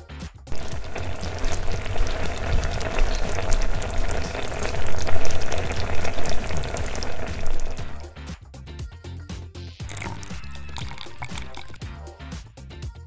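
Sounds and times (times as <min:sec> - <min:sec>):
milk bubbling and sizzling in a pot: 0:00.5 - 0:08.1, 0:09.9 - 0:11.8.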